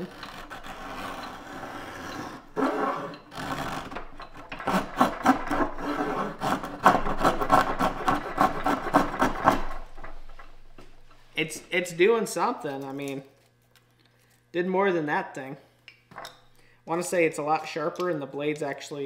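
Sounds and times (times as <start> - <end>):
blade scraping wood: 0.0 - 10.2.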